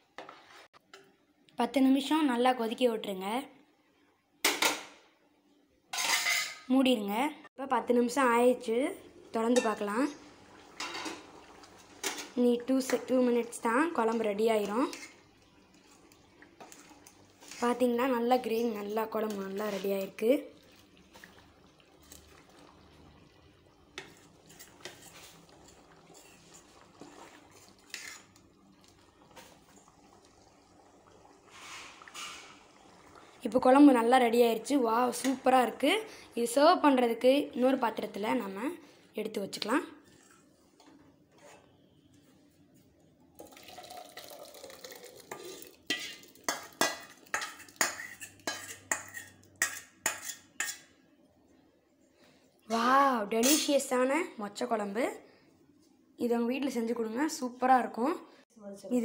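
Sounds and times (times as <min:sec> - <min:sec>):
ladle scraping steel pot: 0:24.0 - 0:28.4, 0:45.3 - 0:50.9.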